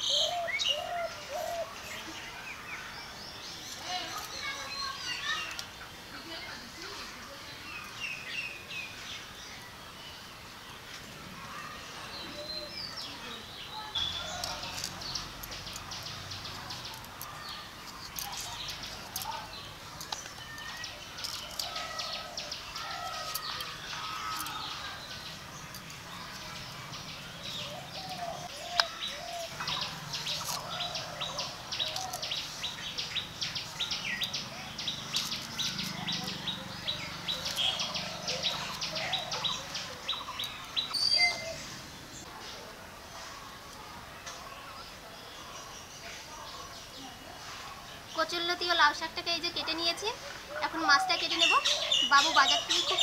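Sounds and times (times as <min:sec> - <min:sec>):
small birds chirping: 0:00.0 - 0:53.0
plant stems snapping: 0:31.8 - 0:32.4, 0:35.1 - 0:36.0.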